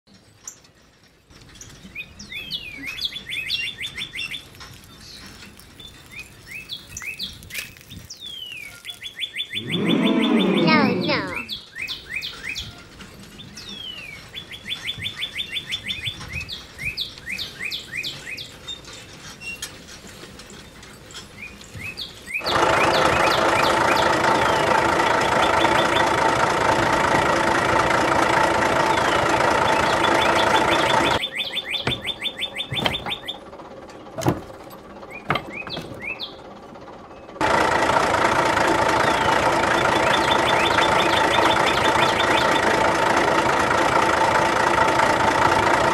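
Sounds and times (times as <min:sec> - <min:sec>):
small birds chirping: 0:01.4 - 0:19.8, 0:20.6 - 0:26.2, 0:28.9 - 0:37.4, 0:39.0 - 0:42.8
model tractor engine drone: 0:09.6 - 0:11.5, 0:19.1 - 0:45.9.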